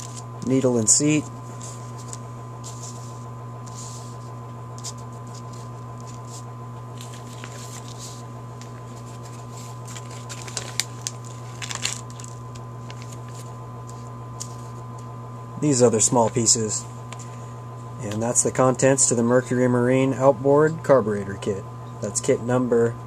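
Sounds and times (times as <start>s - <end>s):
paper rustling: 0.0s - 14.8s
steady low hum: 0.0s - 23.0s.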